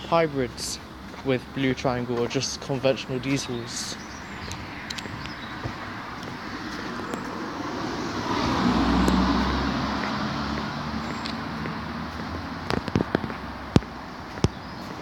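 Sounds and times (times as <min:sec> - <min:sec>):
motor vehicle passing: 0:04.0 - 0:15.0.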